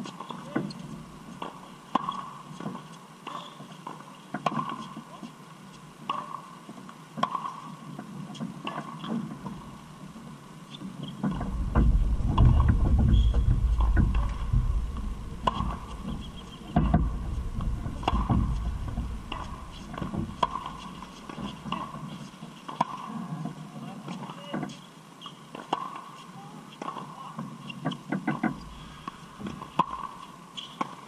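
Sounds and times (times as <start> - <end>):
tennis balls struck and bouncing: 1.4 - 3.5, 4.3 - 5.1, 6.0 - 6.5, 7.2 - 9.6, 15.4 - 23.1, 27.8 - 31.0
low rumble: 11.3 - 21.2.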